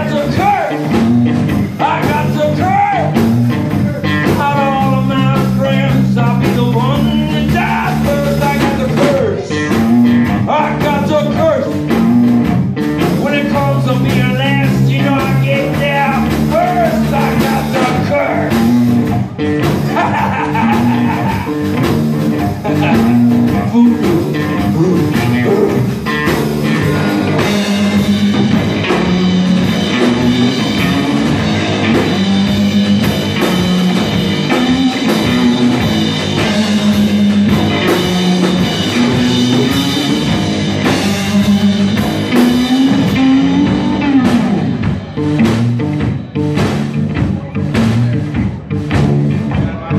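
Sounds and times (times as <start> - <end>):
rock band playing: 0.0 - 49.9
person singing: 1.8 - 9.8, 19.9 - 21.5, 22.4 - 27.9, 39.0 - 44.8.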